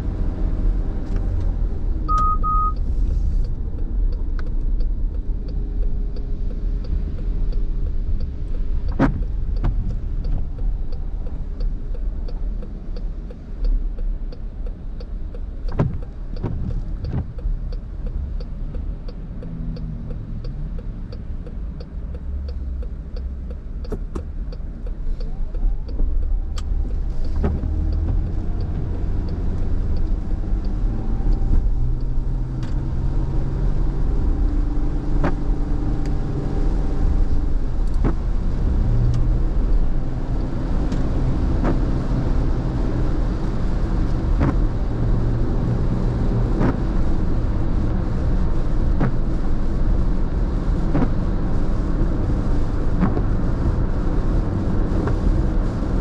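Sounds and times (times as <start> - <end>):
wet road and tyre rumble: 0.0 - 56.0
car engine accelerating: 15.2 - 56.0
windshield wiper knocks: 15.7 - 17.4.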